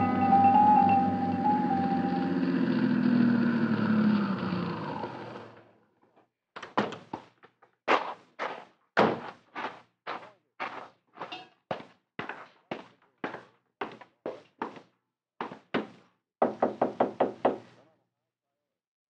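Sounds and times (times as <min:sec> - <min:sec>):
short music bridge: 0:00.0 - 0:03.2
footsteps: 0:07.9 - 0:15.9.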